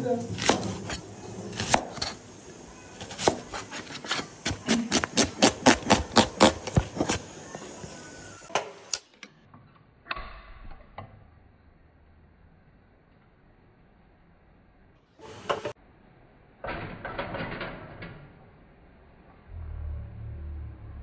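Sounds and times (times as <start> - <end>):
knife chopping onion on board: 0.3 - 2.2, 2.9 - 7.3.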